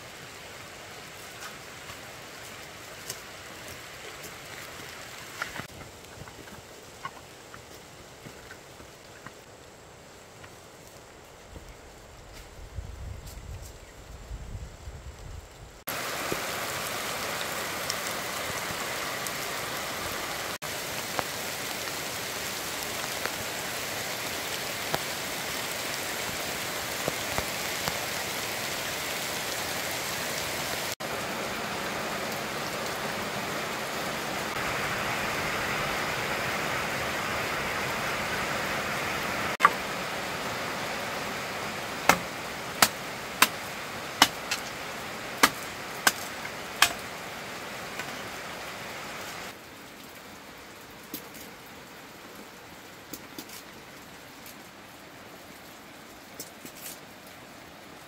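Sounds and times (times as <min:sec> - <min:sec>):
steady outdoor hiss: 0:00.0 - 0:58.0
machete chopping bamboo: 0:42.1 - 0:44.7, 0:45.4 - 0:47.0.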